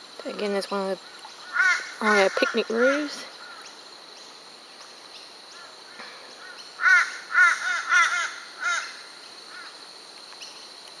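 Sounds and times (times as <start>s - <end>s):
crow cawing: 1.5s - 3.7s, 5.6s - 9.7s.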